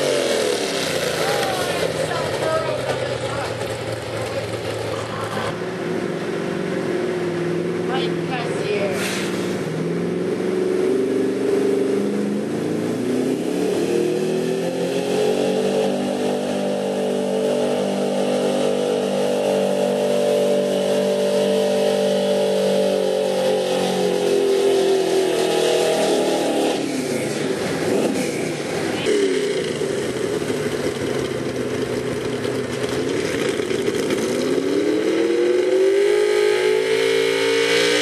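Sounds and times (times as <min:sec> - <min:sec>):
pickup engine at full throttle: 0:00.0 - 0:38.0.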